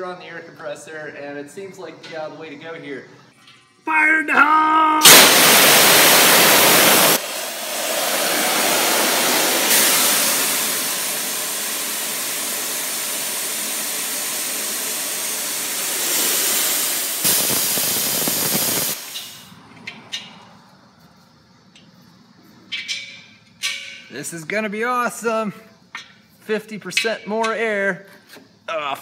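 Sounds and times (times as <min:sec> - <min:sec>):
compressed air hissing from valve: 0:05.0 - 0:19.5.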